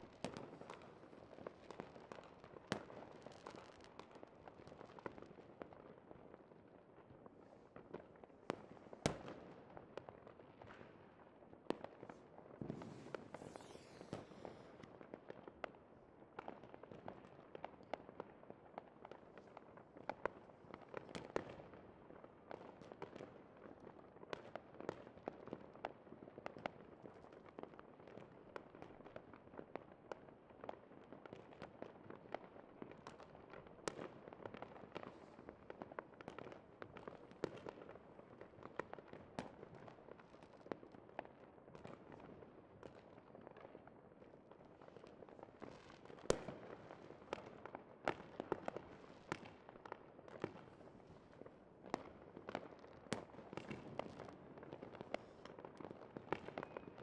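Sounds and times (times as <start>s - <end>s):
fireworks popping and crackling: 0.0s - 7.2s, 11.7s - 57.0s
loud firework bangs: 12.6s - 14.9s.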